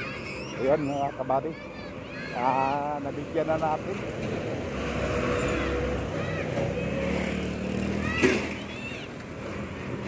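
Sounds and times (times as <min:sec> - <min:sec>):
road traffic passing: 0:00.0 - 0:10.0
bus running past: 0:01.6 - 0:10.0.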